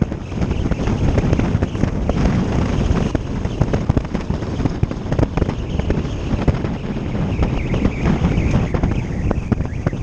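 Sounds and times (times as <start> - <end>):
exhaust popping crackle: 0.0 - 10.0
motorcycle engine rumble: 0.0 - 10.0
wind buffeting microphone: 0.0 - 10.0.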